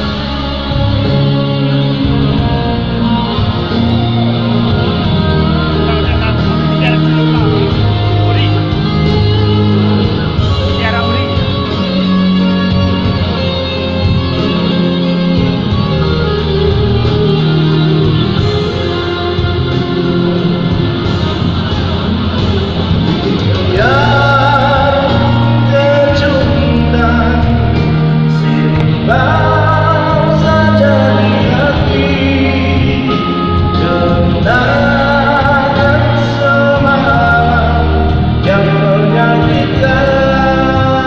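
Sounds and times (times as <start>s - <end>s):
man singing a ballad: 0.0s - 9.3s, 23.6s - 41.0s
instrumental backing with bass: 0.0s - 41.0s.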